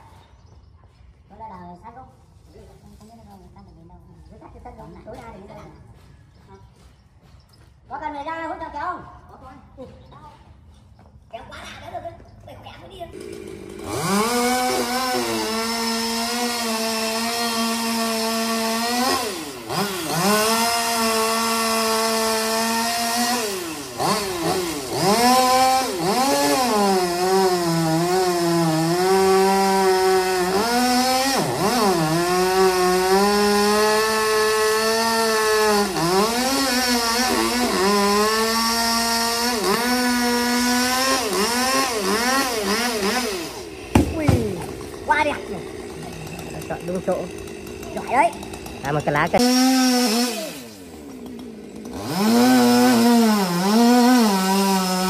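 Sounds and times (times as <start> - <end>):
chainsaw cutting tree limb: 13.1 - 55.0.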